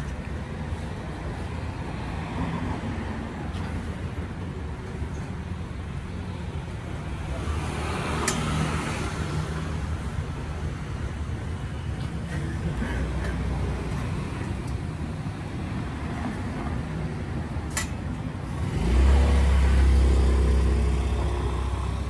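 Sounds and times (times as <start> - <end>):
street traffic rumble: 0.0 - 22.0
sharp click: 17.7 - 18.0
vehicle passing: 18.5 - 22.0.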